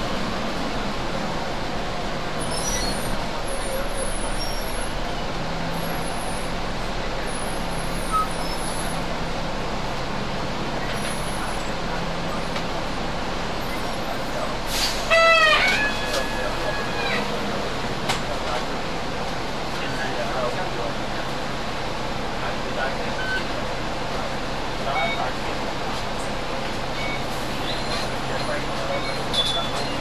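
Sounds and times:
buses idling: 0.0 - 30.0
air brake hiss with squeal: 14.7 - 15.2.

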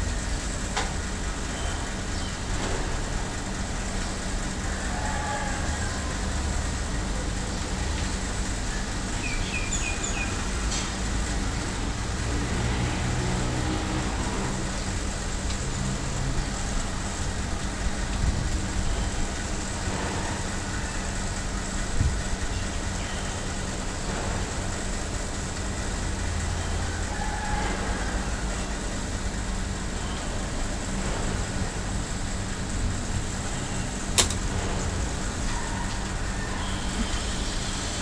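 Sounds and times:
constant hum: 0.0 - 38.0.

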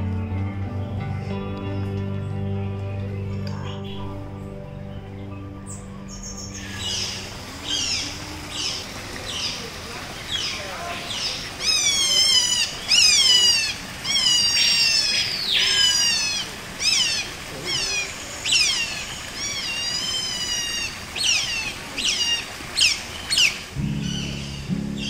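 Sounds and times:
otter squealing calls: 5.7 - 24.7.

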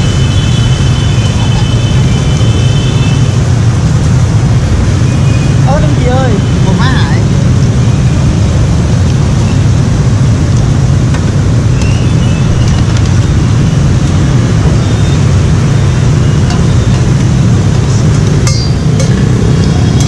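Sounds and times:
metal utensils clinking: 18.5 - 20.0.

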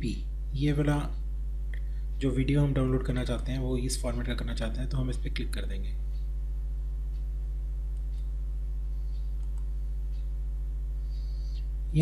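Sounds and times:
electrical mains hum: 0.0 - 12.0
computer mouse clicks: 9.1 - 10.3.

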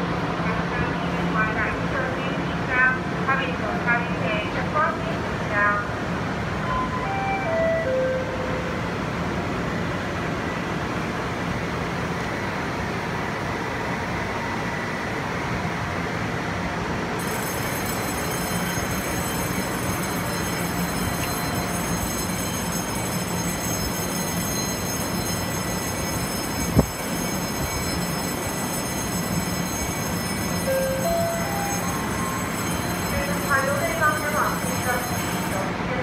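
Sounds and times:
train equipment humming: 4.6 - 36.0
high whine: 17.2 - 35.7.

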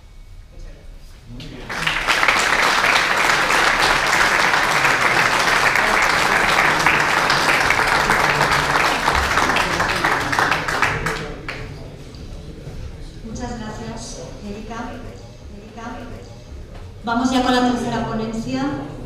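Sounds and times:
audience applauding: 1.3 - 11.9.

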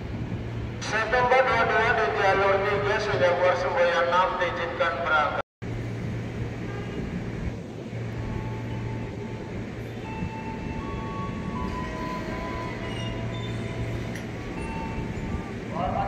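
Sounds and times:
train equipment humming: 5.6 - 16.0.

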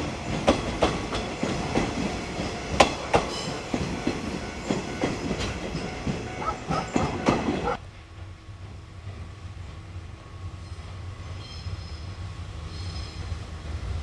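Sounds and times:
train wheels clattering over rail joints: 0.0 - 9.3
train rumble: 0.0 - 14.0.

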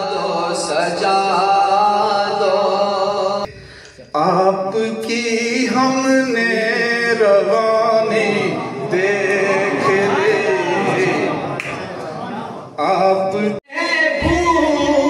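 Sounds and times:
music: 13.7 - 15.0.

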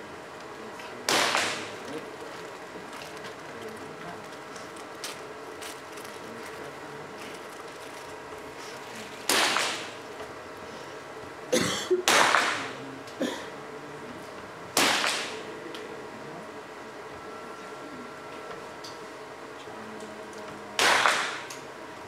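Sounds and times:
pistol shots echoing: 1.1 - 1.7, 9.3 - 10.0, 12.0 - 12.7, 14.8 - 15.4, 20.8 - 21.5.

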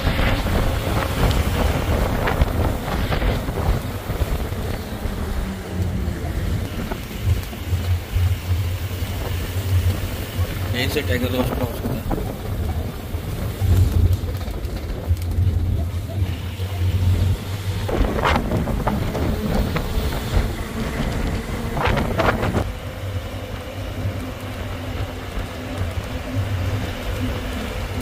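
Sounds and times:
truck engine and road rumble: 0.0 - 28.0
wind buffeting microphone: 0.0 - 28.0.

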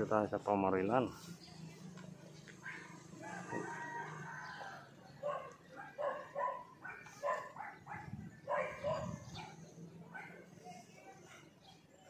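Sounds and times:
dog barking: 2.6 - 3.1, 5.2 - 11.5
rooster crowing: 3.0 - 5.0.

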